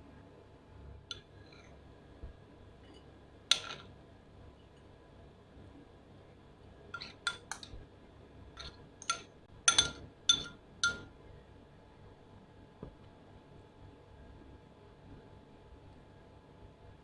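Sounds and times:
metal spoon clinking ceramic bowl: 2.9s - 3.9s, 7.0s - 7.8s, 8.6s - 11.1s.

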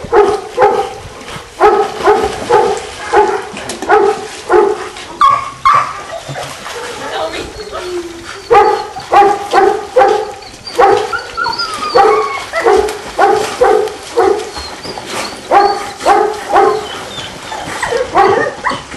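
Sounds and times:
dog barking: 0.1s - 1.0s, 1.6s - 6.0s, 8.5s - 11.2s, 11.9s - 14.5s, 15.5s - 16.9s, 18.1s - 18.6s.

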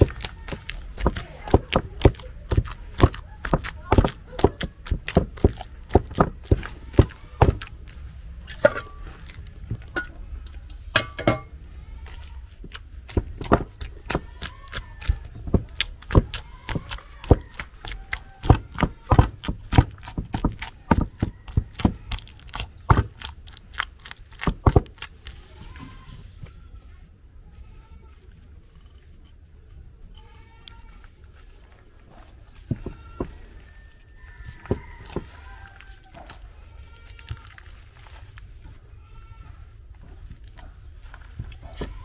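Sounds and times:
wooden pestle pounding in mortar: 0.0s - 8.0s, 12.6s - 25.2s.

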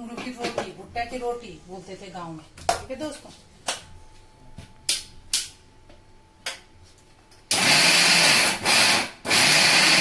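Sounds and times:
mixer grinder motor grinding: 7.5s - 10.0s.

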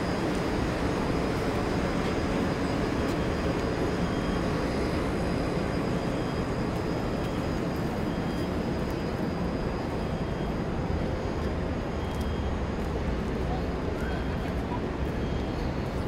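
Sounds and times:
low rumble of city ambience: 0.0s - 16.0s.

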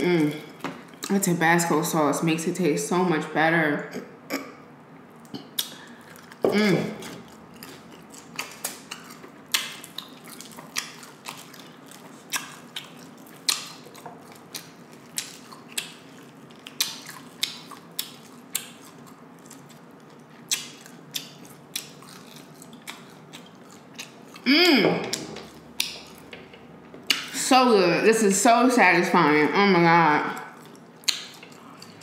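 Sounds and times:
crunchy chewing: 5.2s - 24.5s, 30.5s - 32.0s.

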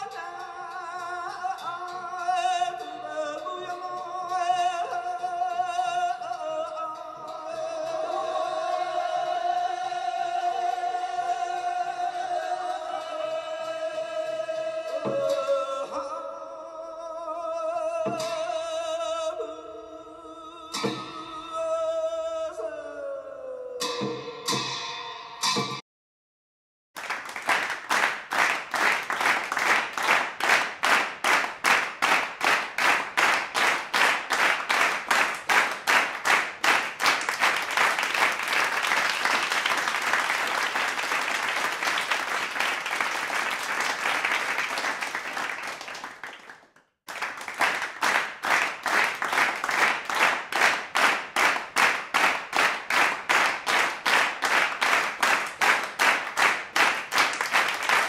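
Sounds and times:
crowd clapping in unison: 0.0s - 0.3s, 27.0s - 58.0s
crowd applause: 27.0s - 58.0s.

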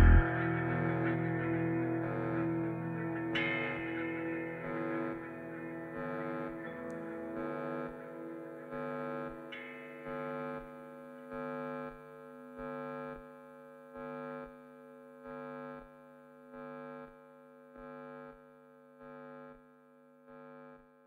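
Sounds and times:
sustained music chord: 0.0s - 6.7s.

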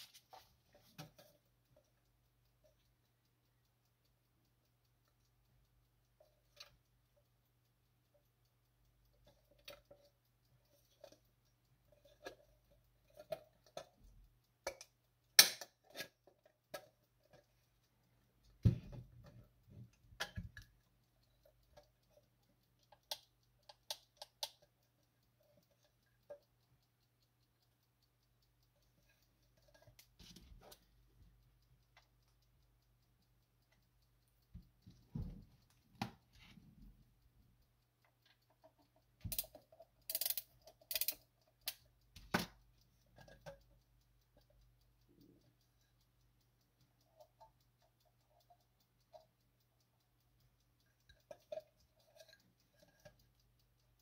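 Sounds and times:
winding key clicking: 1.4s - 54.0s
clock case clicks and knocks: 15.4s - 15.7s, 42.3s - 42.6s.

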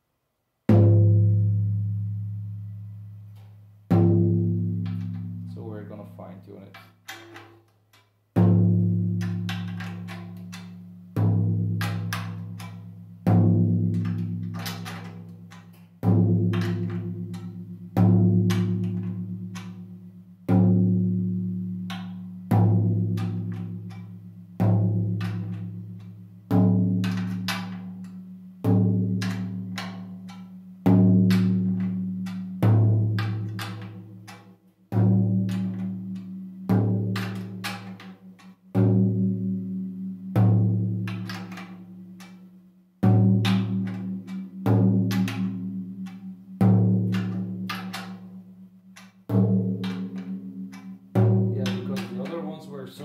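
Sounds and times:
tom drum struck with drumstick: 3.9s - 7.7s, 8.4s - 53.0s.

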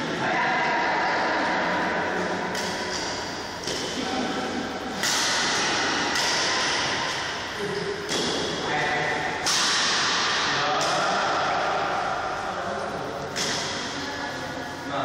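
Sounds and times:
racket hitting shuttlecock: 2.5s - 4.2s, 4.9s - 7.4s, 8.0s - 11.1s, 13.3s - 14.0s.

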